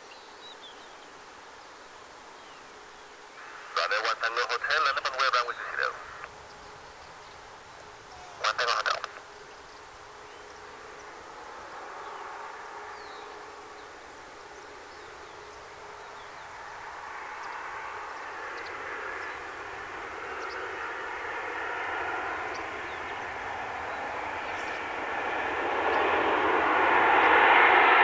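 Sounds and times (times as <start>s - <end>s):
jet engines rushing: 1.2s - 28.0s.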